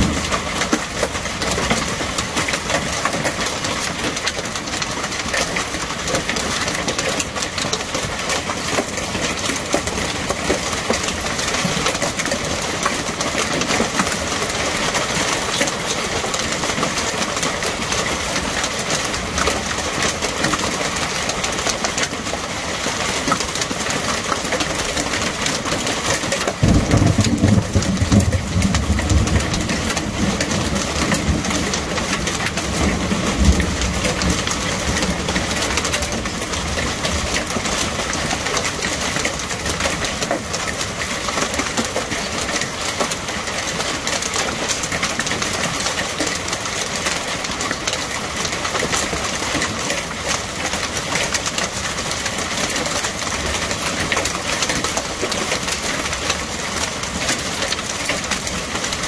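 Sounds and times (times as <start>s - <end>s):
hail and heavy rain pelting: 0.0s - 59.0s.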